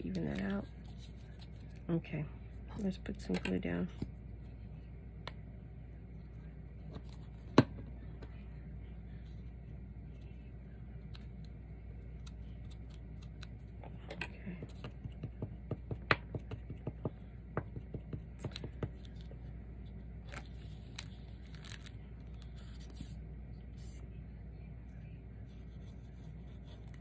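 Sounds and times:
fingers clicking and tapping paper: 14.7 - 19.1.

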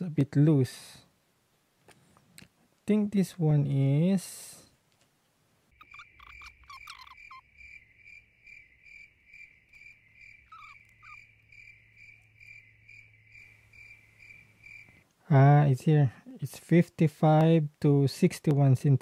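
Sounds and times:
cricket chirping: 5.7 - 15.1.

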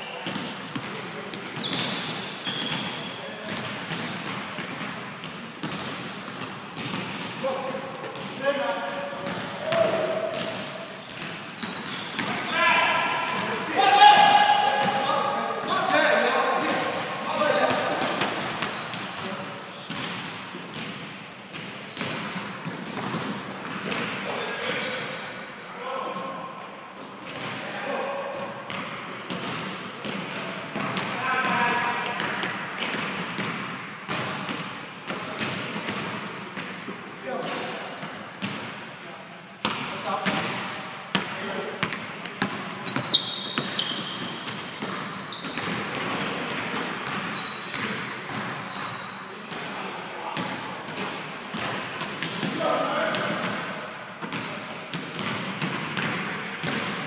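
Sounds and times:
sneaker squeaks: 0.0 - 34.3, 39.6 - 49.7, 50.9 - 53.1, 55.2 - 56.8
basketball bouncing on hardwood floor: 5.6 - 7.3, 21.5 - 24.1, 41.1 - 48.6, 54.3 - 57.0.

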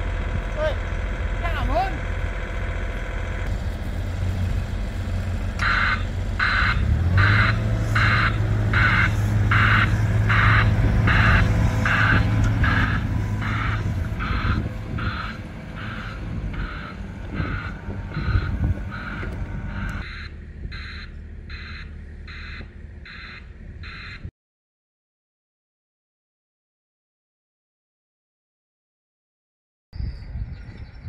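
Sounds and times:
diesel engine running: 0.0 - 24.3
warning alarm beeping: 5.6 - 24.3.

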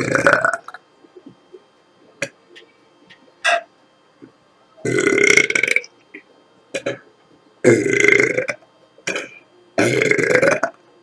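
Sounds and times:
woman belching: 4.9 - 5.9, 7.7 - 10.8.

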